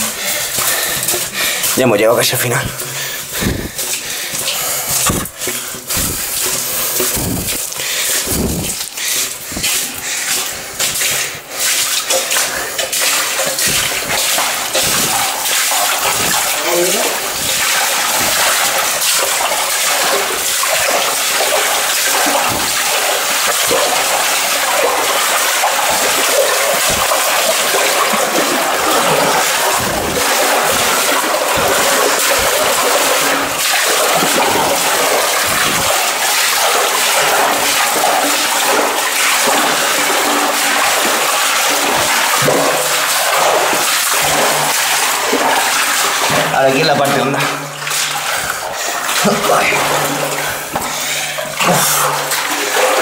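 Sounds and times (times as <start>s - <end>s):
boots sloshing through shallow water: 0.0s - 53.0s.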